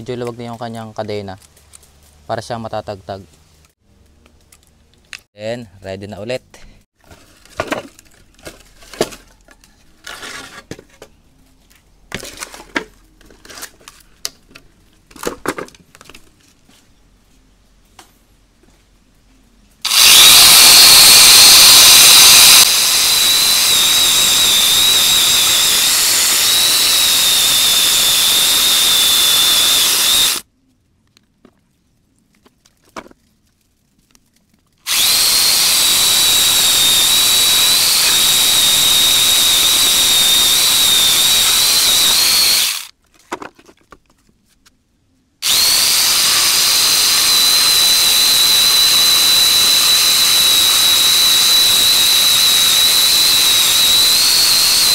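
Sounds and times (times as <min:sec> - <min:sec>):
angle grinder motor whining: 0:19.8 - 0:30.4, 0:34.9 - 0:42.9, 0:45.4 - 0:54.9.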